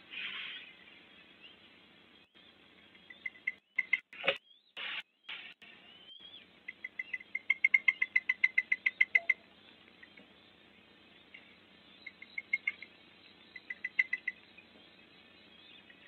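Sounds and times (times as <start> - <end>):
bird chick begging chirps: 3.0 - 4.2, 5.7 - 10.2, 12.0 - 14.5.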